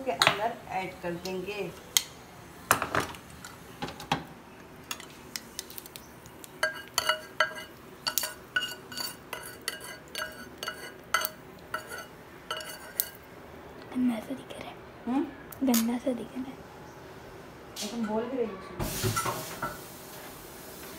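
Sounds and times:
metal spoon scraping a saucepan: 6.6 - 13.2
spoon clinking on china plate: 6.6 - 13.2.

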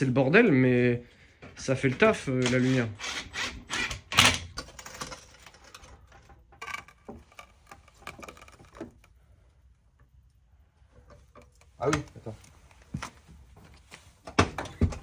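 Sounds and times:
tools and parts clicking and knocking: 1.9 - 9.1.

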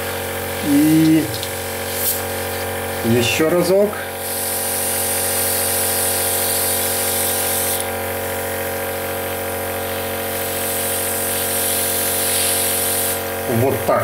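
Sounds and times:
airbrush hissing: 0.0 - 3.4, 4.0 - 8.0, 9.7 - 13.4
airbrush compressor hum: 0.0 - 14.0.

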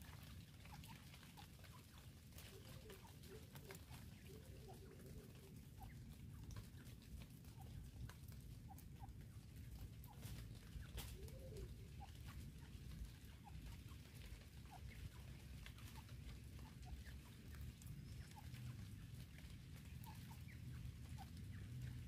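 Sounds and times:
francolins clucking: 0.0 - 22.0.

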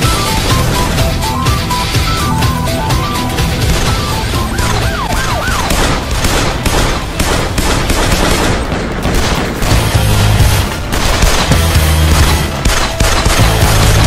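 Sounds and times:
police siren yelping: 0.0 - 6.2
pistols firing: 3.0 - 14.0.

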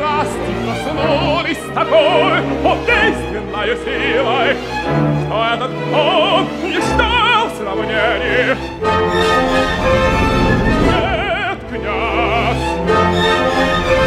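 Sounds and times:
full orchestra: 0.0 - 14.0
tenor singing opera: 0.0 - 14.0.

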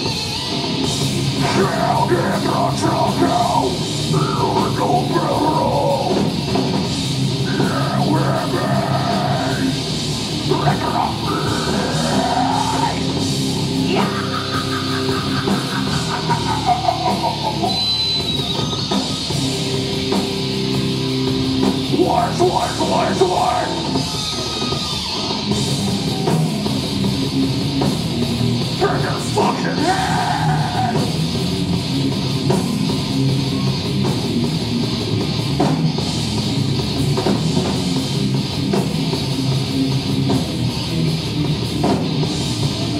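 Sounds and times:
heavy metal band playing: 0.0 - 42.9
person singing and shouting: 1.4 - 6.3, 7.5 - 9.8, 10.4 - 17.9, 21.9 - 25.1, 28.8 - 31.1.

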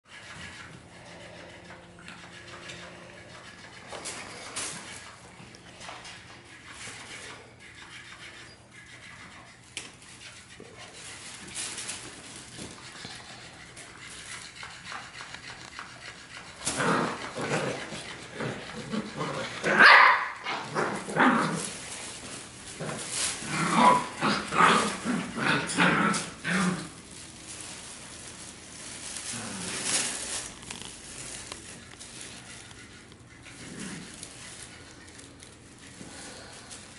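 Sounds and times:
puppies barking and yipping: 13.6 - 22.4.

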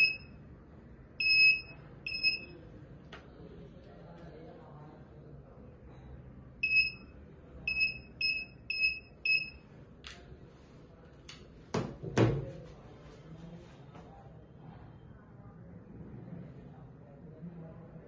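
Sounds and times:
metal detector beeping: 0.0 - 0.3, 1.2 - 2.5.

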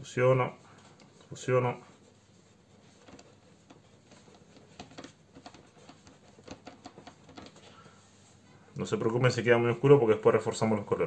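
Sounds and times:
finger rubbing pastel on paper: 0.4 - 8.4.

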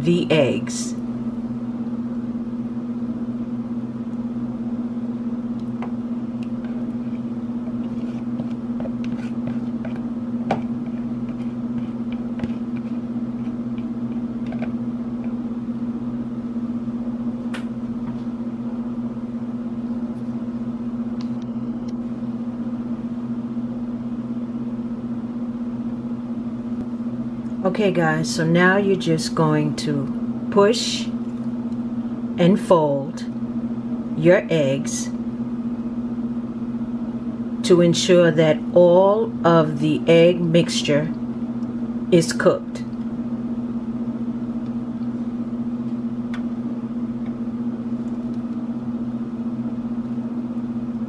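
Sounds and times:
low electrical hum: 0.0 - 51.0
spatula scraping bowl: 6.5 - 14.6.

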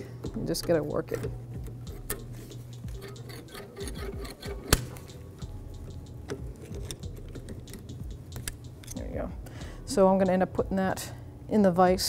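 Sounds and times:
pliers on metal clip clicking: 6.2 - 9.1
sharp metal click: 6.7 - 9.0.

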